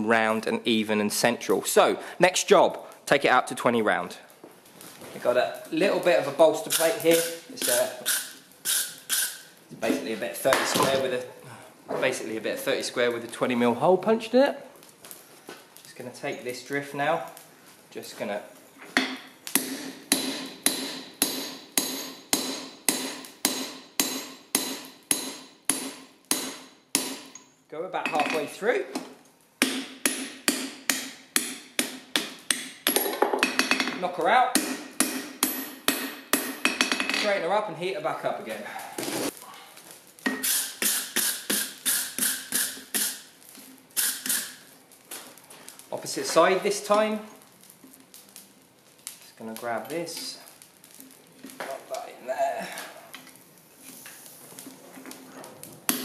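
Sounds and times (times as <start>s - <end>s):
hammer striking steel on anvil: 19.0s - 28.5s, 29.6s - 37.3s, 40.3s - 43.1s.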